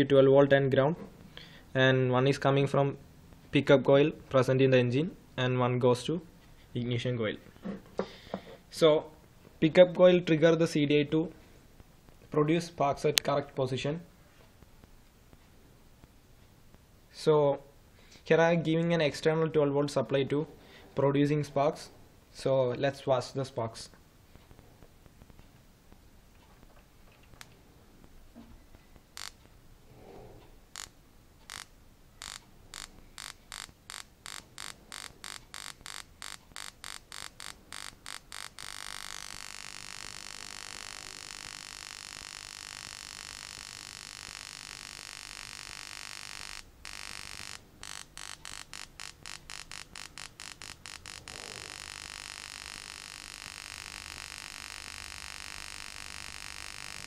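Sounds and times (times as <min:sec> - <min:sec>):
spark plug snapping and buzzing: 0:29.2 - 0:29.4, 0:30.7 - 0:57.0.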